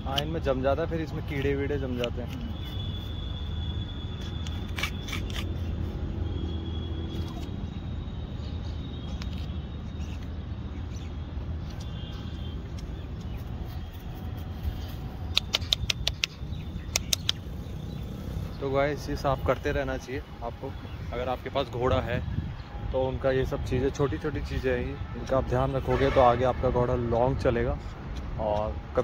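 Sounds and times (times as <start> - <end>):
pick clicking against hoof: 15.3 - 17.4.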